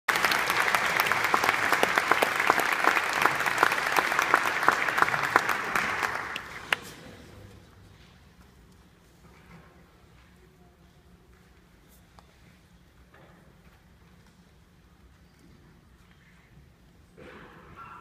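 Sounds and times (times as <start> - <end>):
audience applauding: 0.1 - 6.9.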